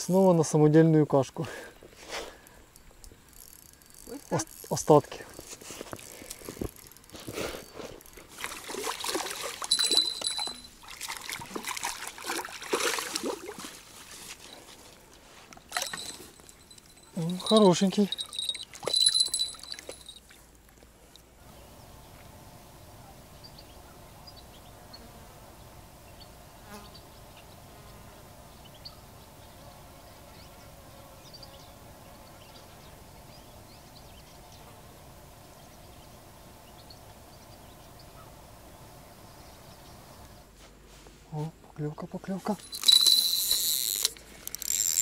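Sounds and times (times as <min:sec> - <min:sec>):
buzz of flying insects: 0:21.4 - 0:41.0.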